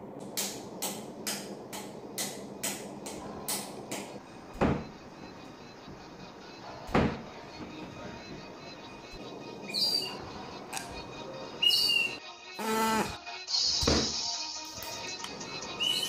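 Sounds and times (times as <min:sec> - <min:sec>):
wardrobe doors banging shut: 0:04.4 - 0:05.0, 0:06.8 - 0:08.5.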